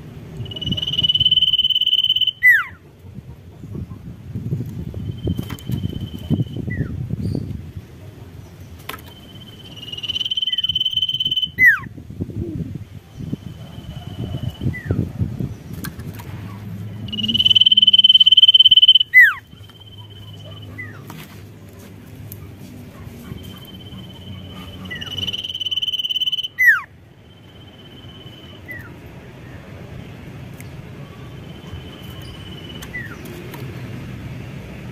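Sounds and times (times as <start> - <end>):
bird whistled note: 0.4 - 2.7, 9.4 - 11.8, 17.1 - 20.5, 24.9 - 26.8
songbird trilling: 0.4 - 2.8, 9.0 - 11.9, 16.9 - 21.0, 23.3 - 29.0, 31.1 - 33.3
low rumbling noise: 9.5 - 19.6.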